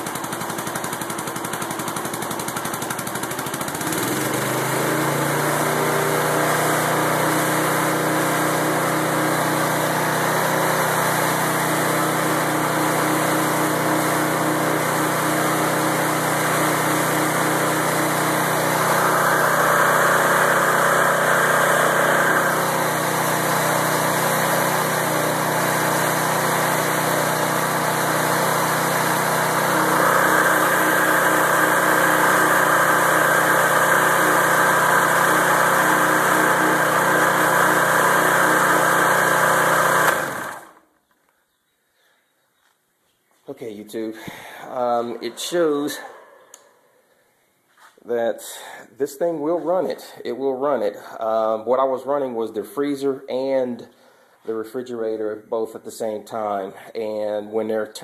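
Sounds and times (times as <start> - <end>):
small lawnmower engine running: 0.0 - 40.9, 44.3 - 46.7.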